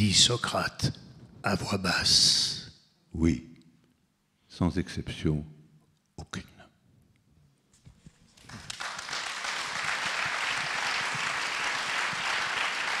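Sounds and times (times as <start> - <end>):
audience applause: 8.5 - 13.0.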